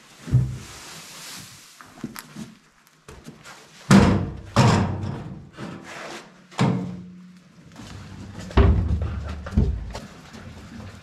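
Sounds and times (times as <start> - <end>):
wheelbarrow knocking on concrete: 8.4 - 10.2.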